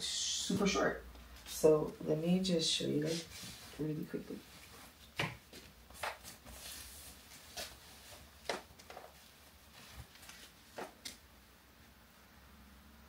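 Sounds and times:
faint room hiss: 0.0s - 13.0s
fabric rustling: 3.0s - 11.2s.

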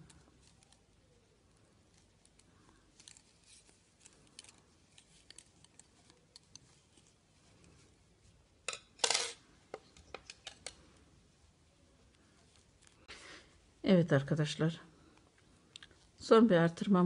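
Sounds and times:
needles clattering and rustling: 0.0s - 13.1s
metal knitting needles clicking: 1.9s - 7.0s.

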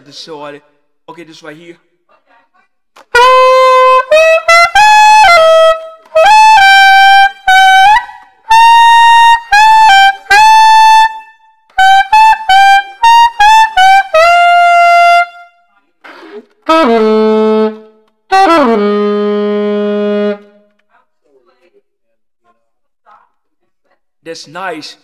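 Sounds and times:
soprano saxophone melody: 3.1s - 15.6s, 16.2s - 20.8s.

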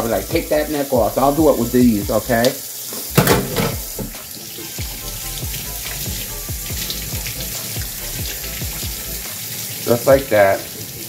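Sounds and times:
tap running into a steel sink: 2.9s - 4.2s.

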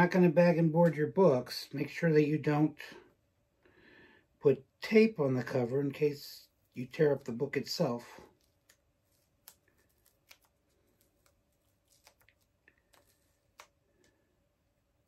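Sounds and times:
comic book paper rustling: 5.4s - 14.3s.

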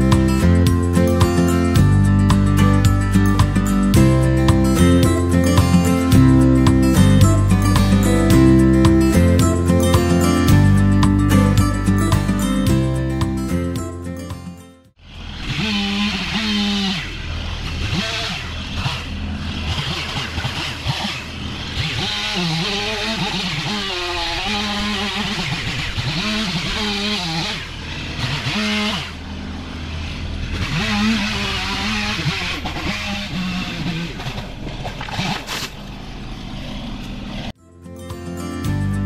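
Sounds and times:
low engine hum: 14.9s - 37.6s
chainsaw revving: 15.0s - 35.6s.

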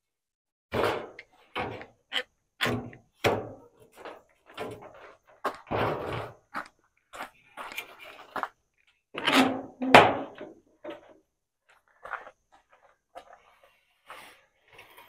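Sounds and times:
knocks and clunks of tools: 0.7s - 6.4s, 9.2s - 11.2s.

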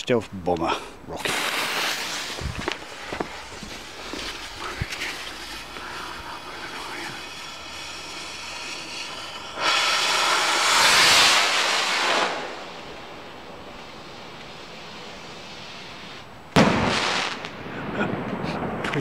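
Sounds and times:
firework bang: 1.2s - 5.8s, 7.0s - 13.6s, 16.0s - 19.0s
firework rocket rushing hiss: 1.2s - 18.8s.

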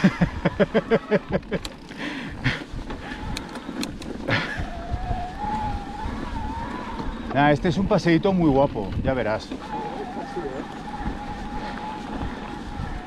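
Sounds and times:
bike tyres on dirt: 0.0s - 13.0s
sharp rattles: 3.0s - 4.4s.

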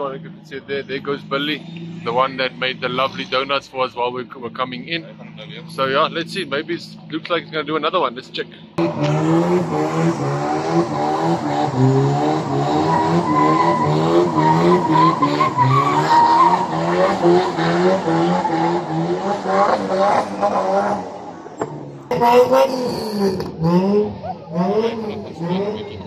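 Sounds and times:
car engine revving high: 8.8s - 26.0s
tyres squealing: 12.7s - 19.1s.

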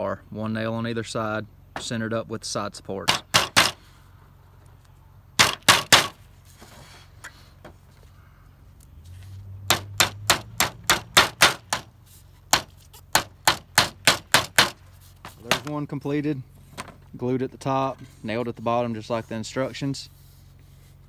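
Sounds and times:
hammer tapping nails into wood: 3.1s - 3.8s, 9.7s - 11.9s, 12.5s - 14.8s.

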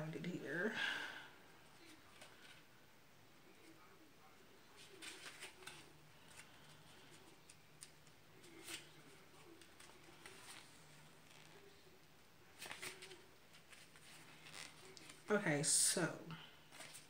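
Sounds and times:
paper pages turning: 4.7s - 11.8s, 12.5s - 15.3s, 16.6s - 17.0s.

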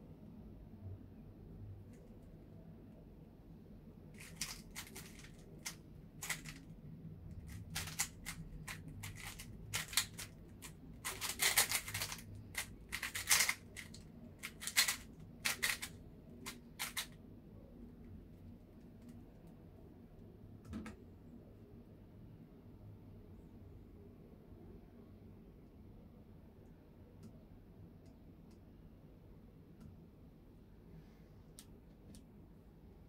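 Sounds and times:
plastic puzzle cube clicking: 4.2s - 6.7s, 7.3s - 17.2s.

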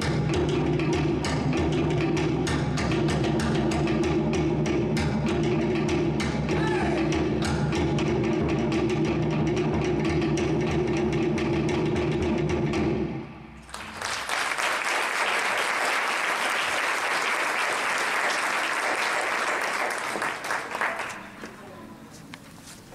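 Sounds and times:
slit drums and hand drums: 0.0s - 13.2s
audience applause: 13.6s - 21.5s.

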